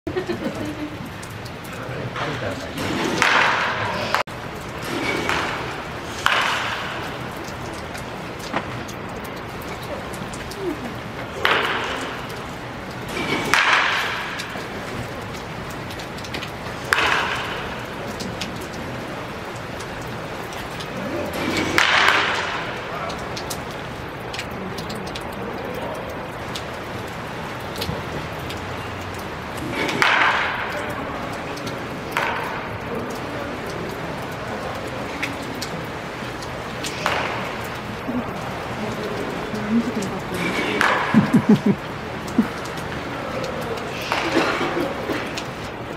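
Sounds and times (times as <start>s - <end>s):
steady background hum: 0.1s - 45.9s
bat cracking ball: 2.8s - 4.2s, 5.1s - 7.1s, 13.1s - 14.8s, 21.6s - 22.7s, 29.9s - 30.7s, 37.0s - 37.6s.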